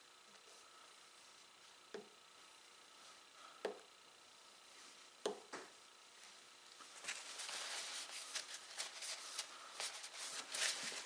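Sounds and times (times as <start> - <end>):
paper towel crinkling: 6.8 - 11.0.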